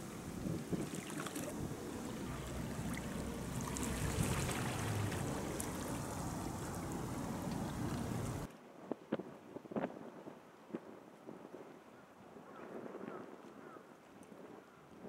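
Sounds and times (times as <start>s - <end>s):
faint lapping water: 0.0s - 8.5s
wind rumble on microphone: 0.0s - 15.0s.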